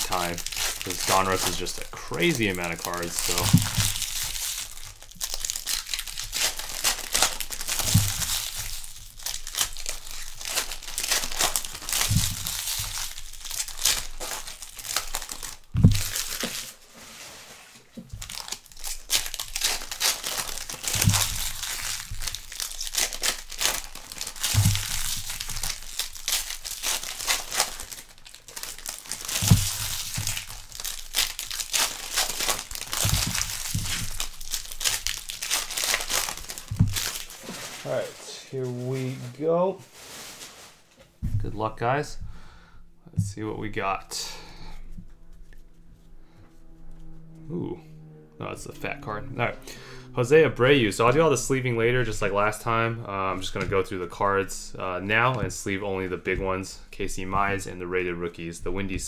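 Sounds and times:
wrappers crinkling and tearing: 0:00.0 - 0:41.0, 0:48.9 - 0:59.0
dull thump: 0:07.8 - 0:08.4, 0:15.7 - 0:16.6, 0:33.0 - 0:34.2, 0:41.2 - 0:41.6.

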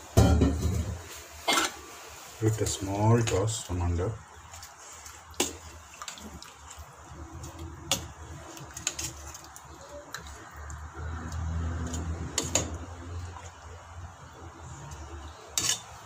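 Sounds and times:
wet slopping and squelching: 0:03.2 - 0:14.0.

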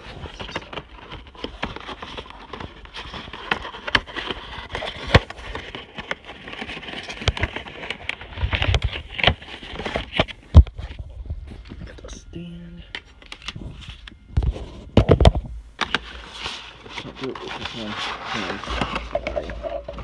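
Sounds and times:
cardboard box scraping and rubbing: 0:16.0 - 0:19.9.

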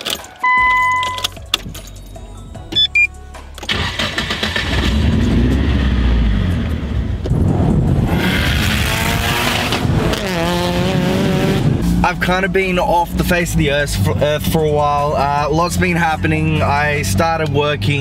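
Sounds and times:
car engine cranking and running: 0:00.0 - 0:18.0
short electronic beeps: 0:00.4 - 0:01.4, 0:02.7 - 0:03.2.

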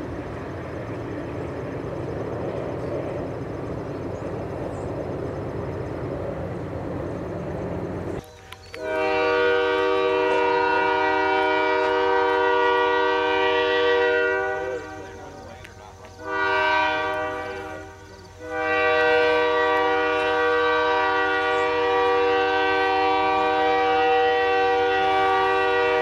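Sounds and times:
freight train rumbling past: 0:00.0 - 0:26.0
locomotive air horn chord: 0:08.7 - 0:26.0.

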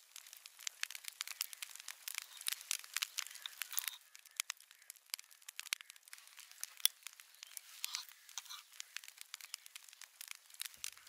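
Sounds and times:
small crackles and clicks: 0:00.0 - 0:11.0
fork scraping charred tomato skin: 0:03.2 - 0:04.0, 0:06.7 - 0:08.8.

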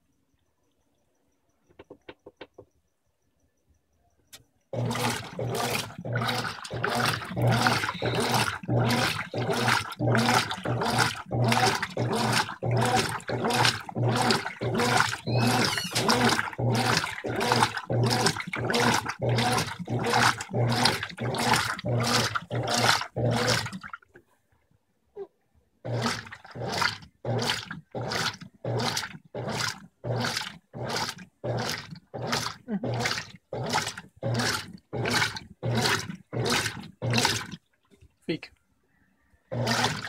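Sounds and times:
washing machine motor humming: 0:04.7 - 0:24.0, 0:25.8 - 0:37.6, 0:39.5 - 0:40.0
agitator swishing water: 0:04.8 - 0:24.2, 0:25.8 - 0:38.4, 0:39.5 - 0:40.0.

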